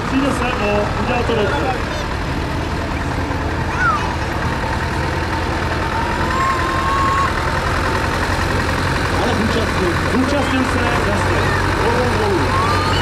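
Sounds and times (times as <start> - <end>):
outdoor noise: 0.0 - 13.0
tractor engines rumbling: 0.0 - 13.0.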